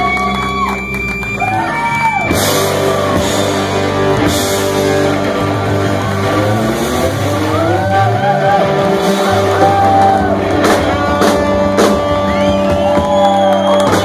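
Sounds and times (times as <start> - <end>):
crowd shouting and whooping: 0.0 - 14.0
blues-rock band playing: 0.3 - 14.0
drum crashes: 2.2 - 7.4, 8.8 - 14.0.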